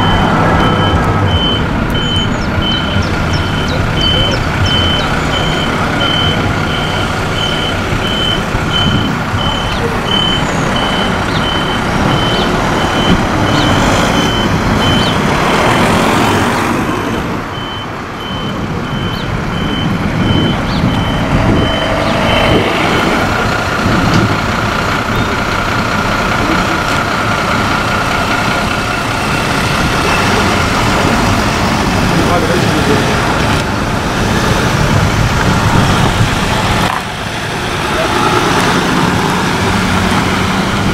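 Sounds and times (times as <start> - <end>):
reversing alarm beeping: 0.0 - 16.6, 17.5 - 25.4
vehicle engines running: 0.0 - 40.9.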